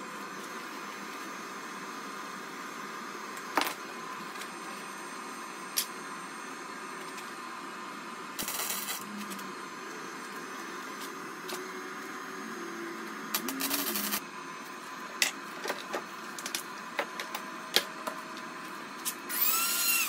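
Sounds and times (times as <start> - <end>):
crackling welding arc: 8.4 - 9.4, 13.3 - 14.2.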